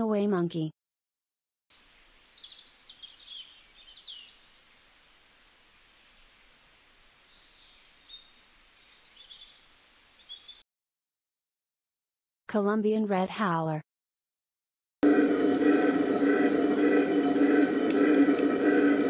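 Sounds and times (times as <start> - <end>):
faint outdoor hiss: 1.7 - 10.6.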